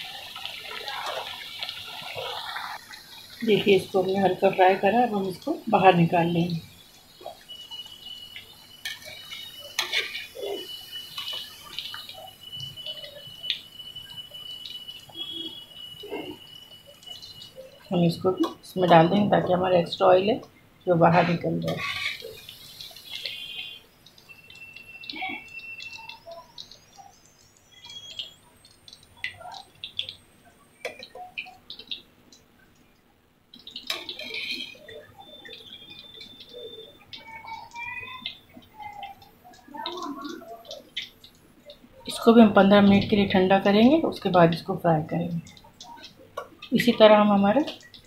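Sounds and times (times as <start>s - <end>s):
potatoes bubbling in hot oil: 0.0s - 48.0s.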